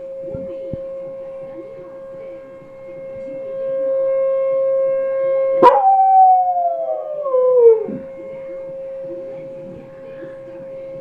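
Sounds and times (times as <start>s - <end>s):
steady pitched tone: 0.0s - 11.0s
dog howling: 5.6s - 8.1s.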